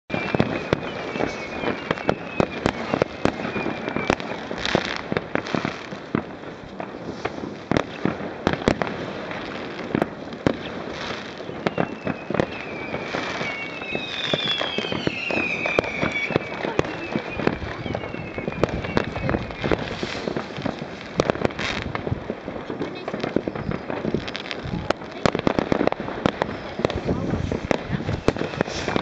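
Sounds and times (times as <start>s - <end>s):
whistling fireworks: 0.0s - 29.0s
fireworks bangs: 0.1s - 29.0s
hissing crackle of fireworks: 0.1s - 29.0s.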